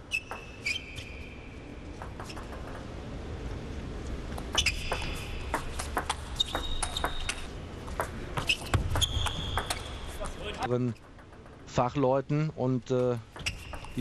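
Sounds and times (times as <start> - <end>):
shoes squeaking on floor: 0.1 - 1.4, 4.5 - 7.5, 8.4 - 10.6, 13.4 - 14.0.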